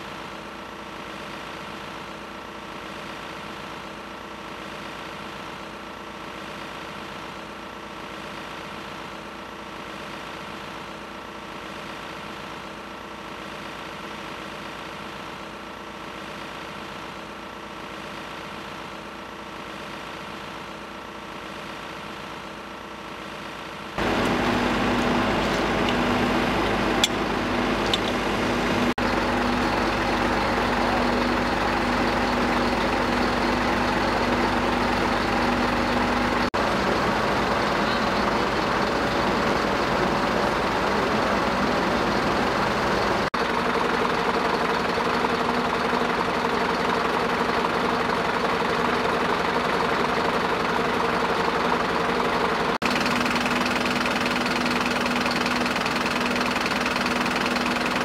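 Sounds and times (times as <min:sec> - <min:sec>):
diesel engines idling: 0:24.0 - 0:58.0.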